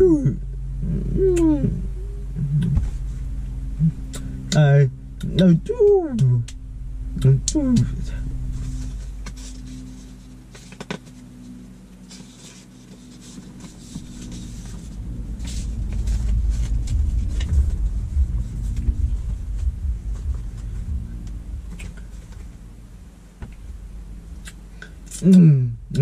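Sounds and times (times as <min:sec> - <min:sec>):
low vehicle rumble: 0:00.0 - 0:26.0
steady low hum: 0:00.0 - 0:26.0
paper rustling: 0:08.6 - 0:17.8.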